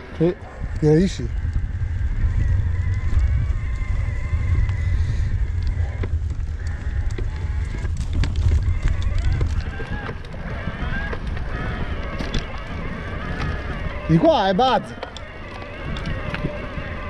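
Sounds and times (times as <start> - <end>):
bike clicks and rattles: 0.0 - 17.0
wind rumble on microphone: 0.0 - 17.0.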